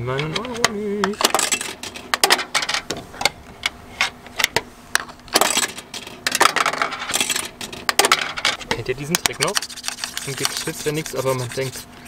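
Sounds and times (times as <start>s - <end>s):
coin clinking through coin mechanism: 1.2s - 2.8s, 5.4s - 8.6s
coin mechanism rattling: 1.2s - 2.8s, 5.4s - 8.6s.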